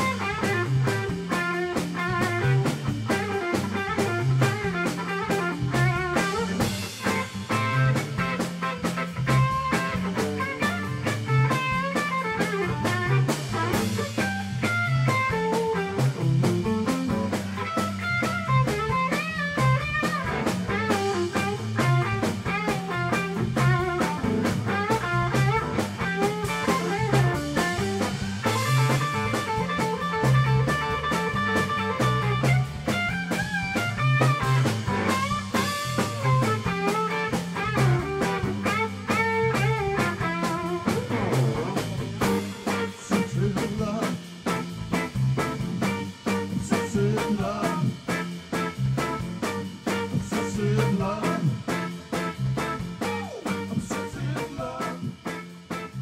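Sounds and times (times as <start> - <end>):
electric guitar bending notes: 0.0 - 50.7
drum kit groove: 0.0 - 56.0
electric bass: 0.0 - 56.0.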